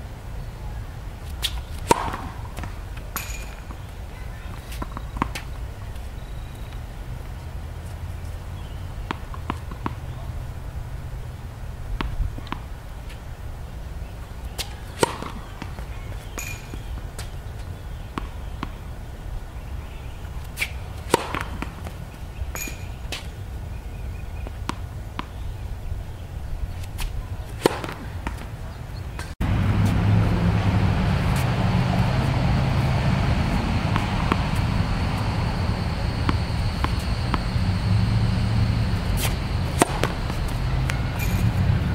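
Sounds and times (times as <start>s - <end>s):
tennis racket hitting ball: 1.2s - 5.6s, 8.6s - 10.1s, 14.4s - 18.8s, 20.4s - 23.3s, 26.8s - 28.6s, 29.2s - 37.6s, 38.6s - 41.9s
tennis balls bouncing: 1.2s - 10.3s, 11.9s - 13.2s, 14.1s - 18.9s, 19.8s - 25.6s, 26.7s - 41.9s
steady rush with high whine: 29.4s - 41.9s.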